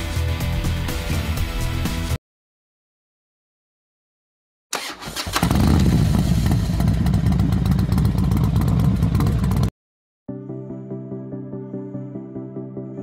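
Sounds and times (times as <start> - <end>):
motorcycle engine running: 5.3 - 9.7.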